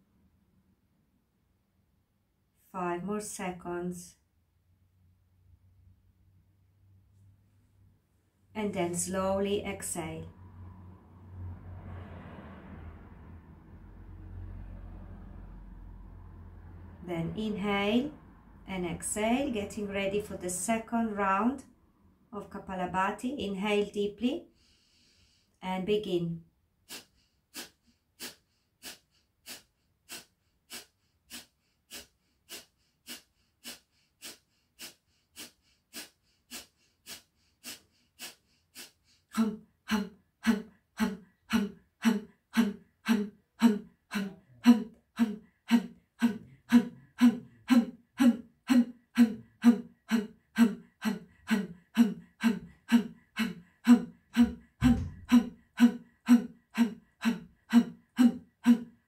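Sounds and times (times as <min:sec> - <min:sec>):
woman's forceful exhalations: 0:49.2 - 0:56.0.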